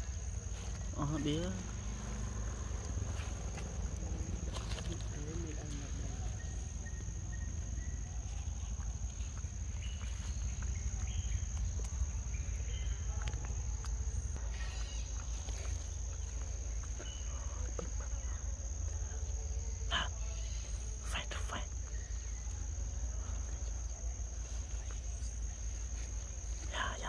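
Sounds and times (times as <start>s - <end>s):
insects droning: 0.0s - 27.0s.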